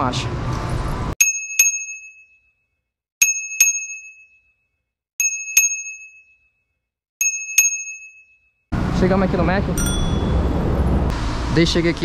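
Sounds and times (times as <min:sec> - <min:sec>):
bicycle bell ringing: 0:01.2 - 0:08.7, 0:09.8 - 0:10.8.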